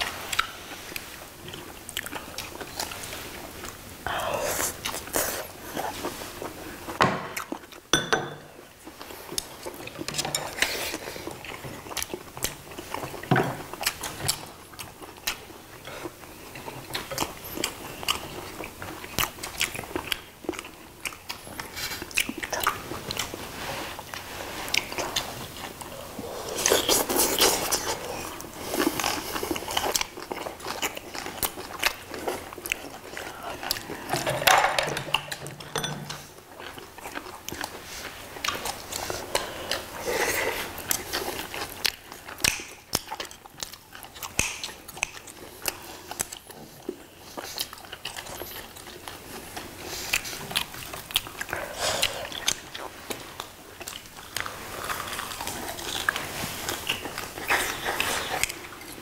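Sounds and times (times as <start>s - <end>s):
chewing and biting: 8.8s - 23.4s, 26.5s - 34.3s, 35.0s - 59.0s.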